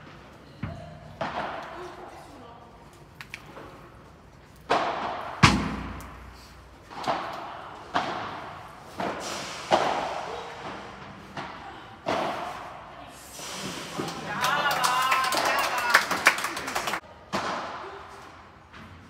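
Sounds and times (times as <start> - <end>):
ball hitting rackets and court: 0.0 - 2.3, 3.4 - 12.9, 17.0 - 19.0
heavy thud: 4.9 - 6.6.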